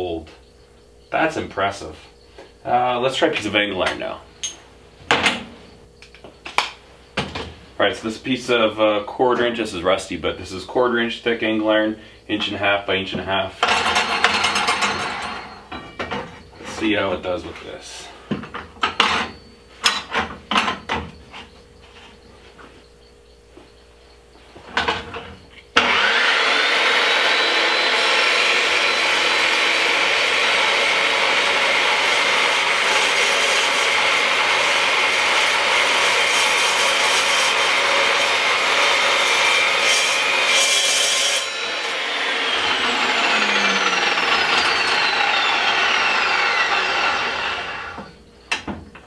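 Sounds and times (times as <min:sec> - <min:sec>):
metal saw cutting steel: 0:13.6 - 0:15.8, 0:25.8 - 0:48.1
saw blade whine winding down: 0:13.6 - 0:15.8, 0:25.8 - 0:48.4.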